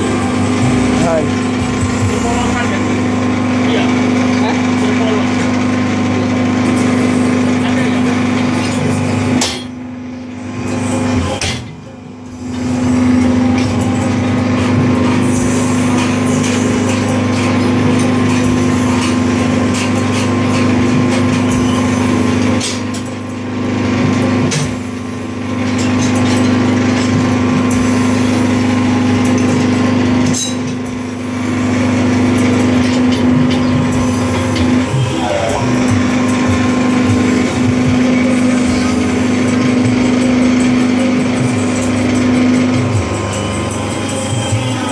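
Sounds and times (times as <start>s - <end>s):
motor and pump hum: 0.0s - 44.9s.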